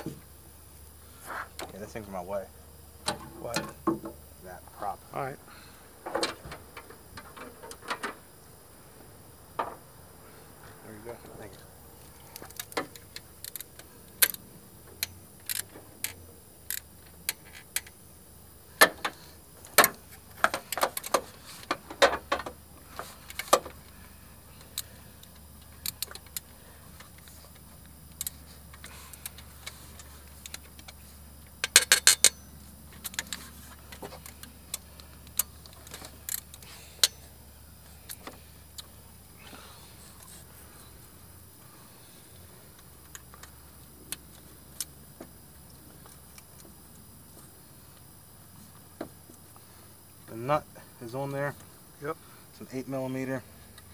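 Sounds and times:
socket ratchet clicks: 30.4s - 32.4s.

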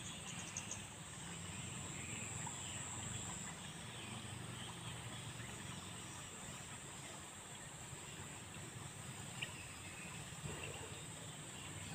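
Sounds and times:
insect chirps: 0.0s - 8.2s.

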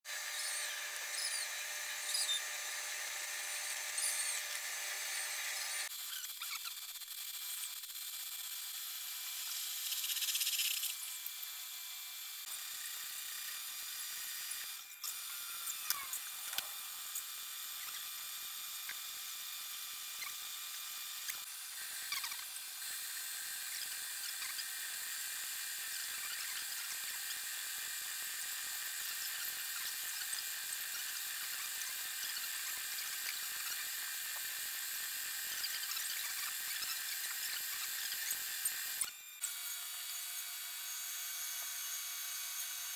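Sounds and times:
metal lathe whining: 0.1s - 6.4s
tool cutting metal squeal: 0.1s - 42.9s.

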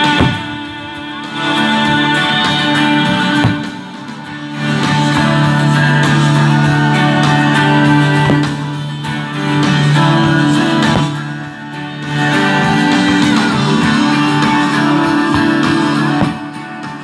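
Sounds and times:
guitar-led music: 0.0s - 17.0s
brief thump: 10.9s - 11.2s.

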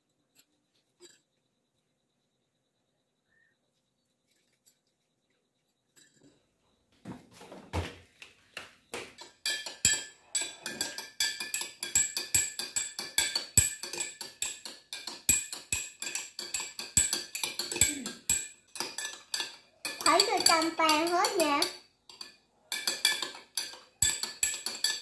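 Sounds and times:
spoon clinking in a glass: 9.2s - 25.0s.

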